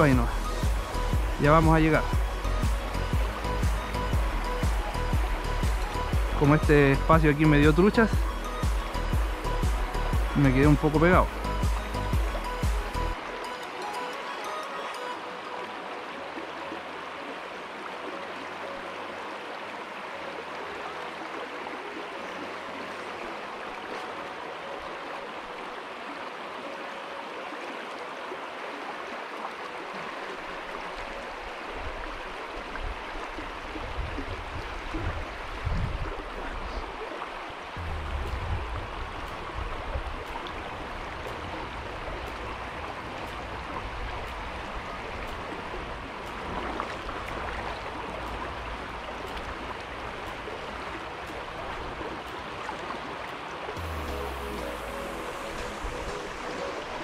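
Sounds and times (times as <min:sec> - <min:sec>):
river rushing over stones: 0:00.0 - 0:57.0
low rumbles: 0:37.8 - 0:40.2.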